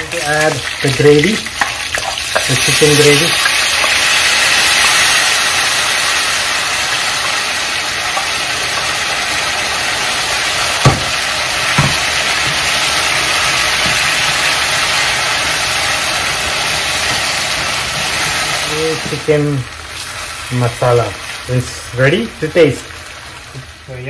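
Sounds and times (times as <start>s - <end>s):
gravy sizzling in hot pan: 0.0s - 24.0s
sharp knocks: 10.8s - 11.2s, 11.8s - 12.6s.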